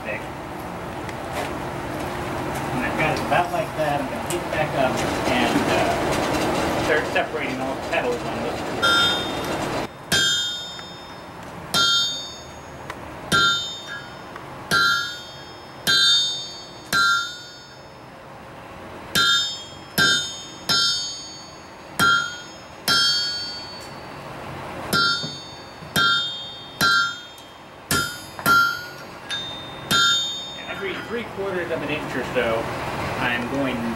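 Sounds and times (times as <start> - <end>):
hammer striking hot steel on anvil: 8.8 - 18.1, 19.1 - 24.2, 24.9 - 31.3.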